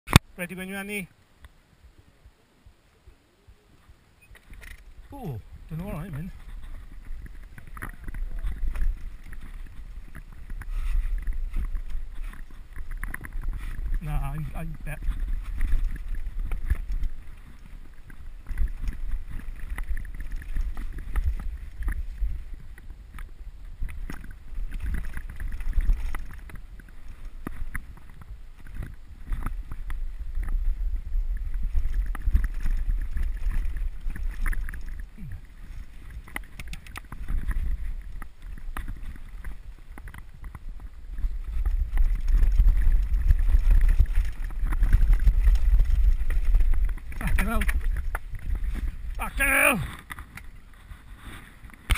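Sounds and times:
wind buffeting microphone: 1.8 - 50.8
bike tyres rumbling: 3.8 - 51.9
bike rattling and knocking: 35.8 - 49.2.

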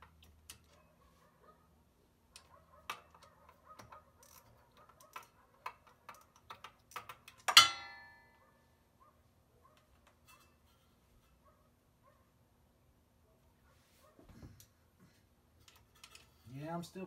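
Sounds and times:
loud ringing metal clang: 7.6 - 8.3.

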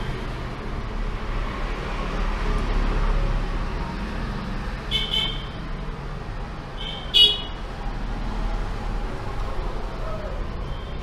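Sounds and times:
street traffic noise: 0.0 - 11.0
vehicle horn honking: 4.9 - 5.5, 6.8 - 7.6.

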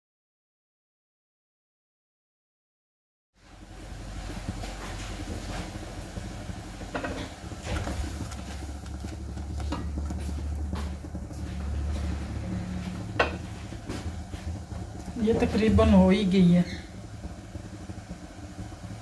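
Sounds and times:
chutney bubbling in saucepan: 3.4 - 19.0
gas burner low rumble: 3.4 - 19.0
spatula scraping and knocking pan: 4.6 - 15.8.

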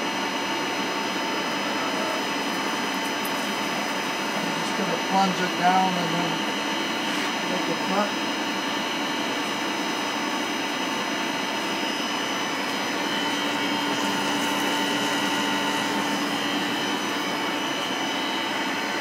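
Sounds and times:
milling machine spindle whine: 0.0 - 19.0
coolant nozzle hissing: 12.6 - 18.1.

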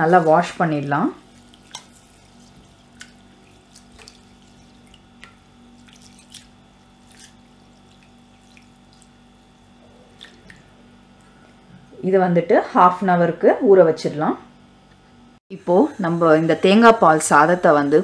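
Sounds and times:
hand washing rice in water: 0.0 - 10.8.

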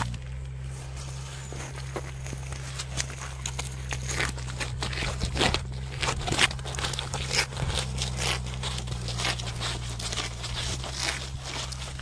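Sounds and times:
gritty scrapes on concrete: 0.0 - 12.0
steady low hum: 0.0 - 12.0.

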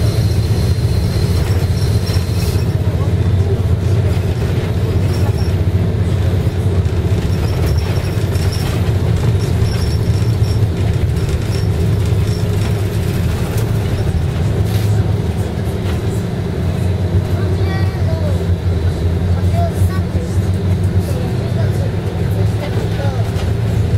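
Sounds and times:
bus engine drone: 0.0 - 23.9
road noise: 0.0 - 23.9.

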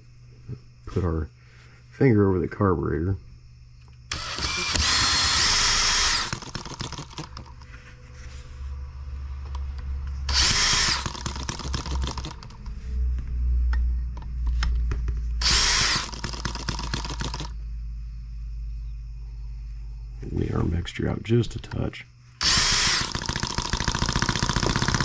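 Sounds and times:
engine mechanism clicking: 3.9 - 7.6, 9.5 - 12.8, 15.4 - 17.6, 21.6 - 25.0
cordless drill spinning: 4.1 - 7.5, 10.3 - 12.5, 15.4 - 17.5, 22.4 - 25.0.

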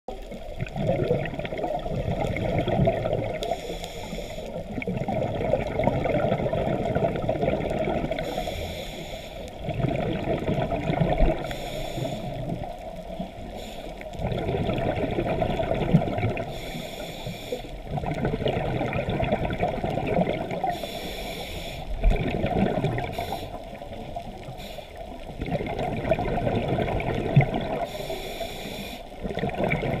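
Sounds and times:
gurgling exhaled bubbles: 0.1 - 3.6, 4.6 - 8.4, 9.6 - 16.7, 17.8 - 20.9, 21.9 - 28.2, 29.1 - 30.0
hissing regulator inhale: 3.4 - 4.7, 8.1 - 9.6, 11.3 - 12.6, 13.4 - 14.2, 16.4 - 17.8, 20.6 - 22.0, 23.0 - 25.2, 27.8 - 29.2.

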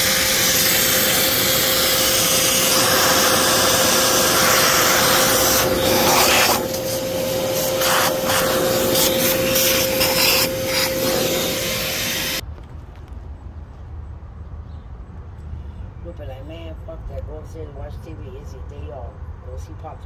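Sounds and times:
motorized tool whining: 0.0 - 12.4.

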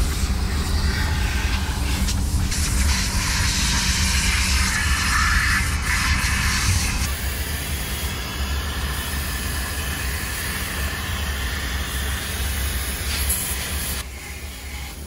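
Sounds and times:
low motor hum: 0.0 - 4.9
air rushing through hose: 0.0 - 14.0.

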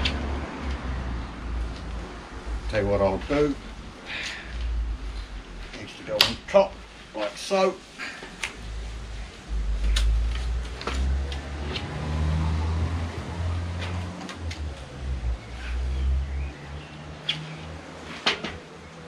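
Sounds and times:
steady low rumble: 0.0 - 7.2, 8.4 - 11.9.

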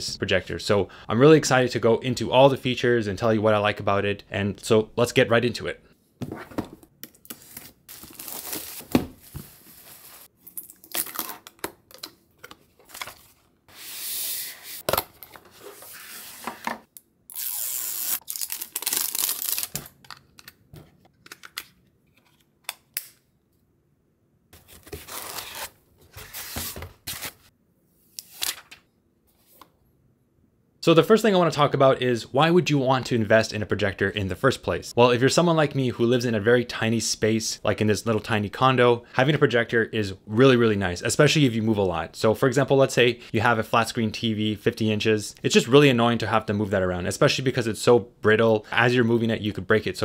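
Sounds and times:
plastic wrap crinkling and tearing: 9.8 - 11.6, 17.9 - 20.0.

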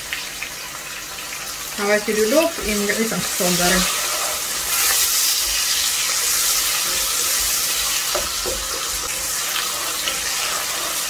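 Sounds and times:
vegetables sizzling in a pot: 0.0 - 11.0
wooden spatula stirring: 2.6 - 11.0.

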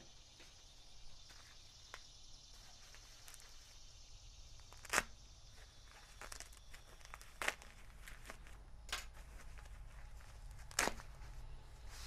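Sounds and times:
packing wrap rustling: 4.6 - 12.0.

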